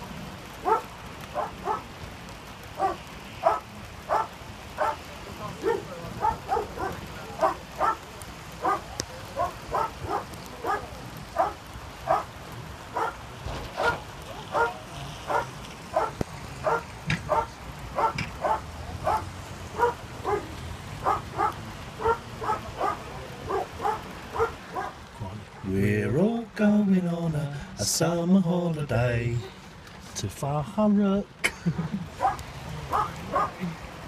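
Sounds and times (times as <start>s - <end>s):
dog barking: 0.6s - 1.9s, 2.8s - 13.2s, 13.8s - 25.0s, 32.2s - 33.6s.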